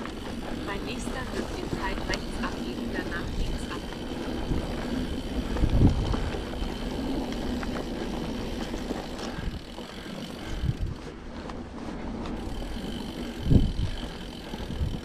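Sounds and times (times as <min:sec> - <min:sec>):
mountain bike tyres rumbling: 0:00.0 - 0:15.0.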